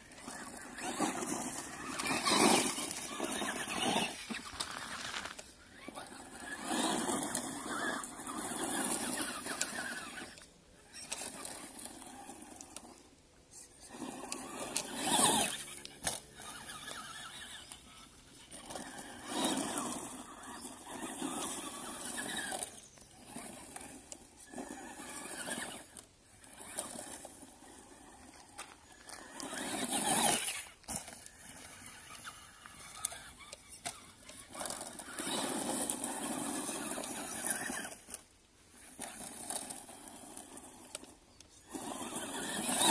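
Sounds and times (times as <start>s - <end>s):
tyres scrabbling over gravel: 0.0s - 13.1s, 13.9s - 42.9s
electric motor whining: 13.9s - 42.9s.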